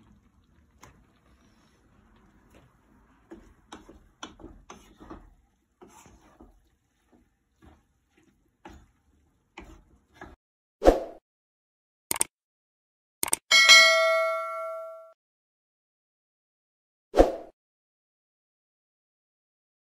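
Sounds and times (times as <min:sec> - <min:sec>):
utensil scraping in frying pan: 0:00.0 - 0:10.4.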